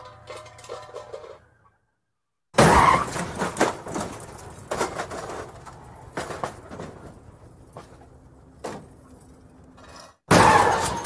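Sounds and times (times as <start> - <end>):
metal and glass debris clattering: 9.8 - 11.0.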